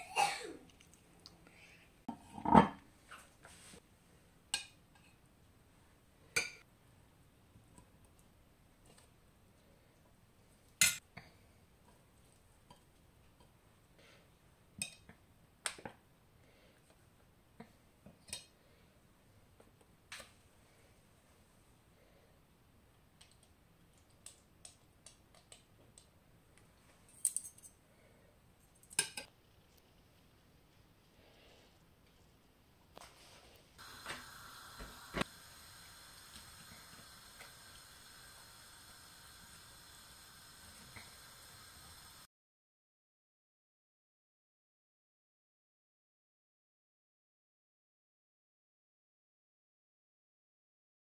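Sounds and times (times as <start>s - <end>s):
ceramic plate set on stone: 2.1s - 2.8s.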